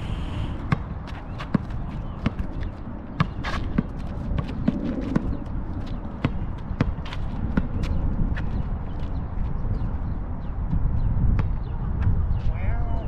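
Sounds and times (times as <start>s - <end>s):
low rumble: 0.0s - 0.8s
basketball bouncing on asphalt: 0.6s - 9.9s, 10.7s - 12.2s.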